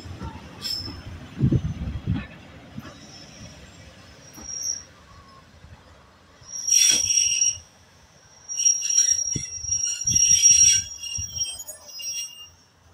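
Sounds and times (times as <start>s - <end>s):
train wheel squeal: 0.5s - 1.8s, 2.8s - 12.9s.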